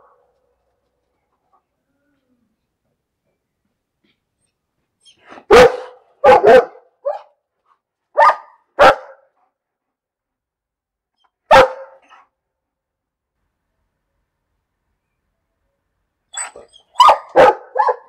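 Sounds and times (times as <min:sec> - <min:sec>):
dog barking: 0:05.3 - 0:07.4, 0:08.1 - 0:09.4, 0:11.5 - 0:12.3, 0:17.0 - 0:18.0.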